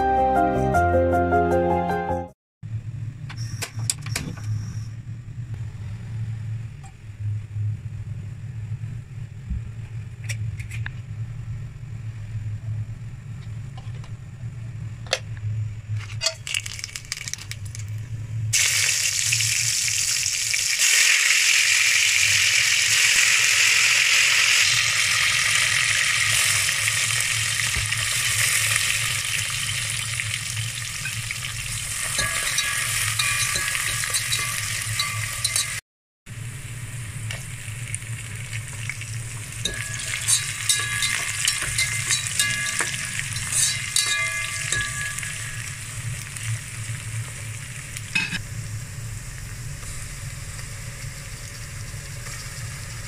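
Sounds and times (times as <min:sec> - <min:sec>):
low steady hum: 0:02.6 - 0:18.8, 0:25.4 - 0:53.0
food sizzling in hot oil: 0:18.5 - 0:53.0.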